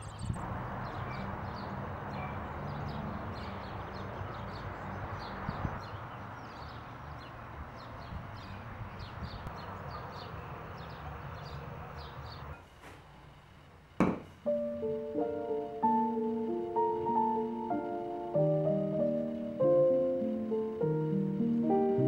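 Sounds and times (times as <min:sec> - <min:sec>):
small birds chirping: 0:00.0 - 0:12.6.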